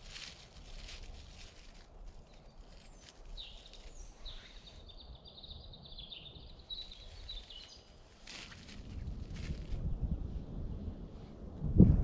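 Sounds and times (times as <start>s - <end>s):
songbird warbling: 2.8s - 8.5s.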